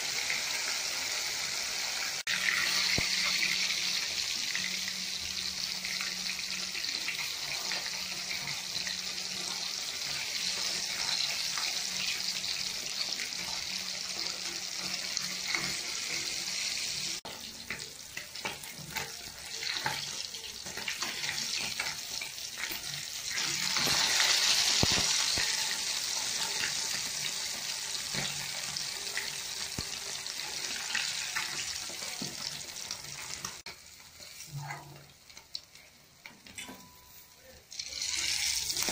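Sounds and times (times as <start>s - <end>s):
fish sizzling in hot oil: 0.0s - 36.5s, 37.7s - 38.9s
spoon clinking against pan: 36.4s - 37.2s.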